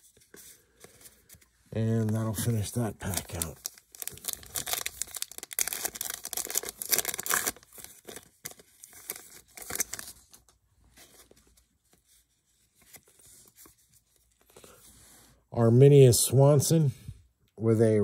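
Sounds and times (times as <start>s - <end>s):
cards rustling: 0.0s - 14.9s
wrapper tearing and crinkling: 2.0s - 10.4s.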